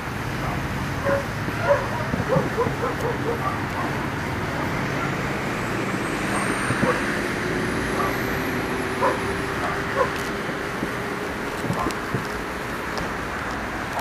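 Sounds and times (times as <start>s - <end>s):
distant city traffic rumble: 0.0s - 14.0s
dog barking: 0.4s - 4.0s, 6.4s - 7.0s, 8.0s - 8.2s, 9.0s - 10.2s.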